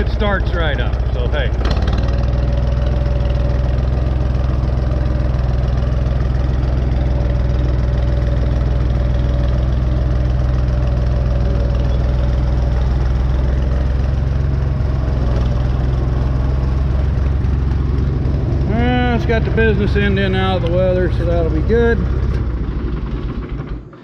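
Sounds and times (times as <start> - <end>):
steady whine: 0.0 - 24.0
tractor engine running: 0.0 - 24.0.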